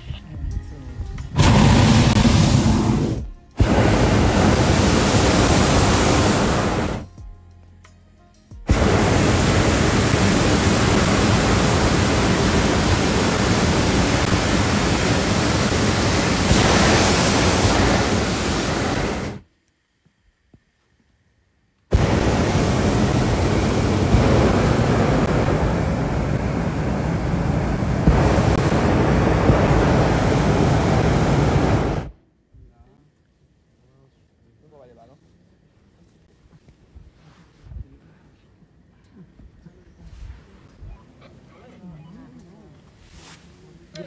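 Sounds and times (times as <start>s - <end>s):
propane burner rushing: 1.4s - 7.0s, 8.7s - 19.4s, 21.9s - 32.2s.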